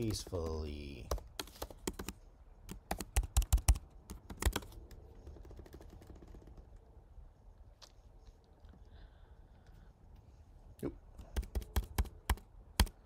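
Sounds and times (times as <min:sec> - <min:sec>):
computer keyboard keystrokes: 0:01.0 - 0:06.6, 0:11.2 - 0:13.0.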